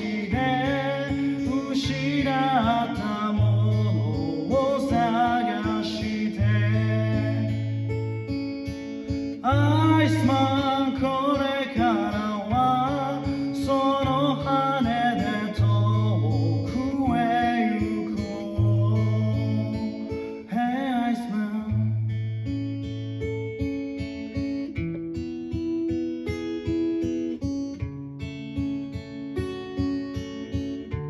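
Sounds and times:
man singing: 0:00.0 - 0:08.0, 0:09.1 - 0:22.0
acoustic guitar strumming: 0:00.0 - 0:31.0.

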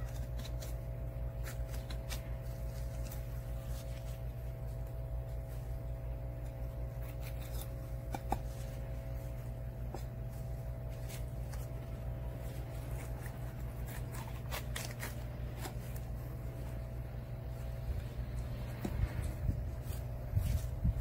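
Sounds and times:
low hum: 0:00.0 - 0:21.0
knife scraping bone and board: 0:06.8 - 0:08.8.

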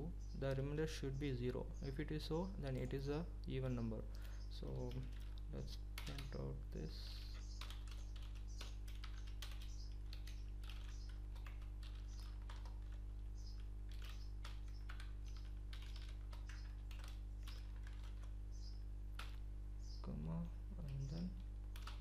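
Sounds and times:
low electrical hum: 0:00.0 - 0:22.0
typing on computer keyboard: 0:04.8 - 0:06.4, 0:07.6 - 0:18.4, 0:19.2 - 0:19.4, 0:21.7 - 0:22.0.

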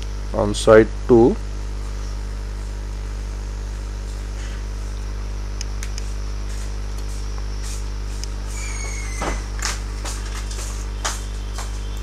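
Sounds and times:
low electrical hum: 0:00.0 - 0:12.0
hiss: 0:06.0 - 0:11.8.

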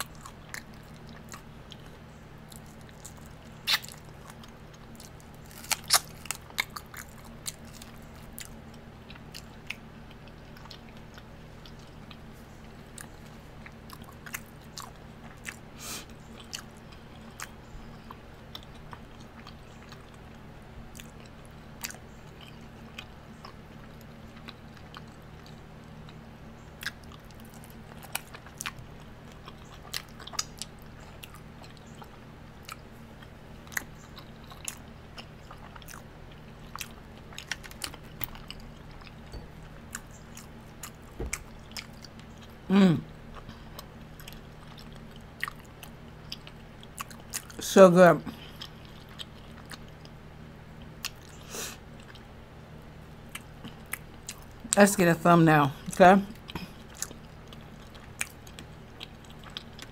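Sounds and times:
wet chewing: 0:00.0 - 0:47.6, 0:48.3 - 0:50.2, 0:56.3 - 0:59.9
low hum: 0:00.0 - 0:59.9
lip smacks: 0:02.7 - 0:04.1.

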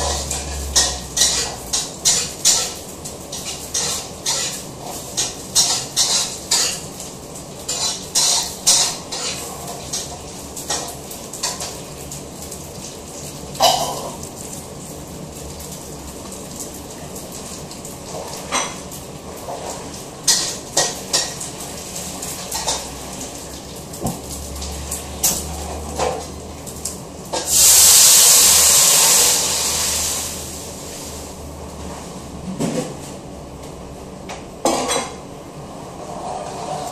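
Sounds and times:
loud hiss: 0:27.5 - 0:30.8.

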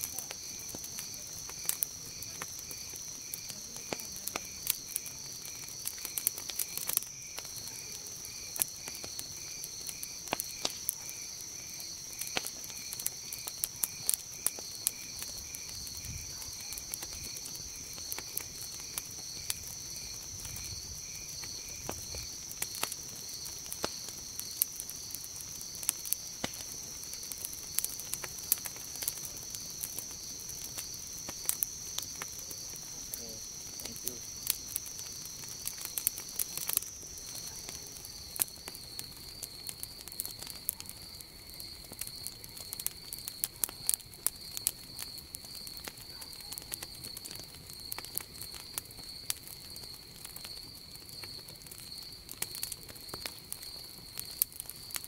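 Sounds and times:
campfire crackling and popping: 0:00.0 - 0:55.0
night insects chorus: 0:00.0 - 0:55.0
pulsing insect chirp: 0:00.0 - 0:55.0.

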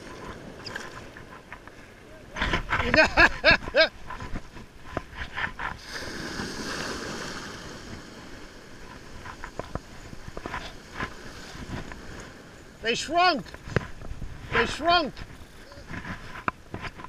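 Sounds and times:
ocean surf rushing: 0:05.3 - 0:16.0.

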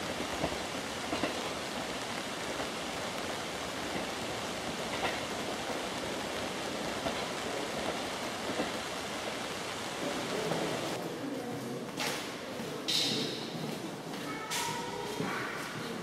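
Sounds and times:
steady rain: 0:00.0 - 0:11.0.

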